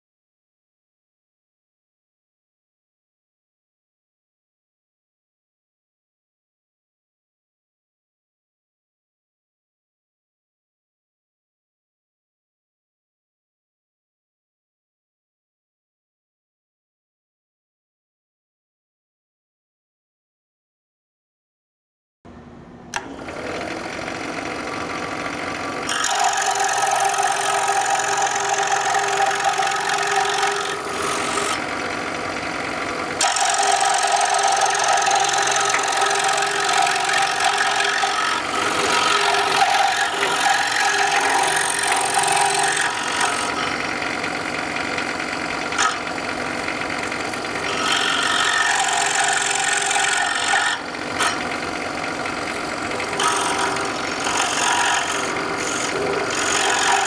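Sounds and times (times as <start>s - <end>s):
scroll saw cutting wood: 22.9s - 57.0s.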